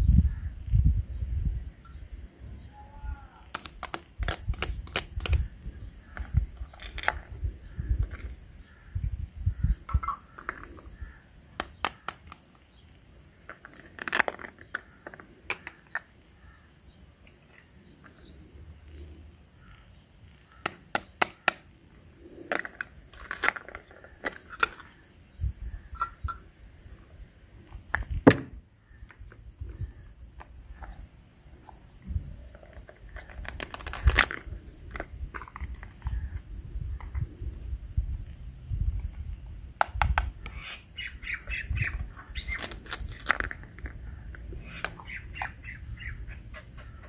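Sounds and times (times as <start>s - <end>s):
plastic clicks and knocks: 3.5s - 5.4s, 13.5s - 16.1s, 27.9s - 29.4s
rasping rips of plastic pieces: 3.5s - 5.5s, 6.1s - 7.3s, 13.6s - 15.9s, 22.5s - 25.0s, 32.8s - 35.8s, 42.4s - 43.9s.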